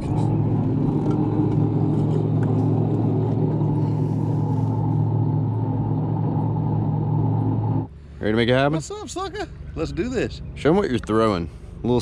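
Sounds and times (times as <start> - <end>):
boat motor running: 0.0 - 8.1.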